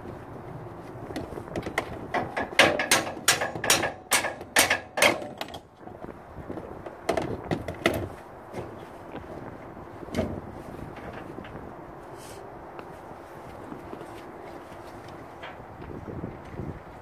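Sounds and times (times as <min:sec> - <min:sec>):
metallic clicks and clanks: 0:01.6 - 0:05.7.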